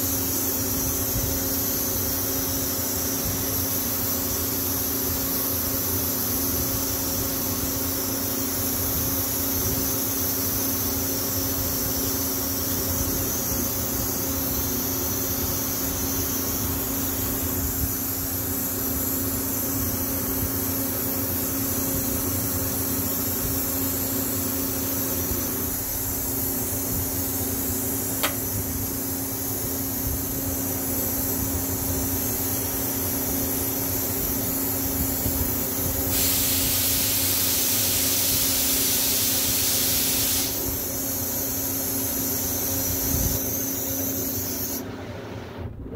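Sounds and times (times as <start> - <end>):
electrical hum with high hiss: 0.0 - 45.9
sharp click: 28.2 - 28.5.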